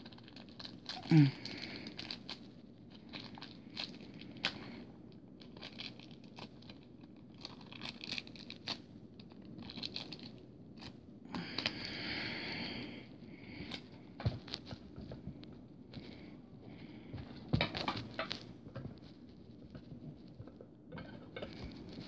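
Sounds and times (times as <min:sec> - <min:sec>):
packaging crinkling: 0:00.0 - 0:04.8, 0:05.4 - 0:11.9, 0:13.5 - 0:15.2, 0:17.2 - 0:20.5
packaging rustling or tearing: 0:00.0 - 0:04.8, 0:05.4 - 0:11.0.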